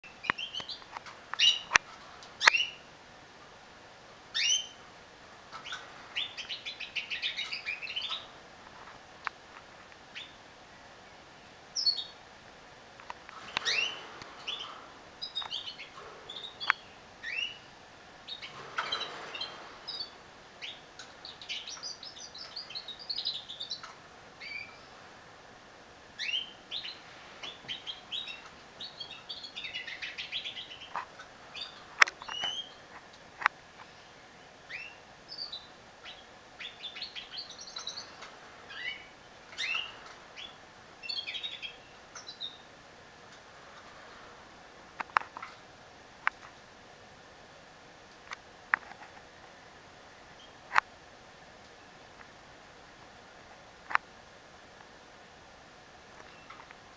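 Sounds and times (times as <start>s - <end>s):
canary singing: 0.0s - 2.9s, 4.3s - 4.9s, 5.5s - 8.5s, 10.1s - 10.5s, 11.7s - 12.2s, 13.2s - 25.1s, 26.1s - 33.0s, 34.4s - 42.7s.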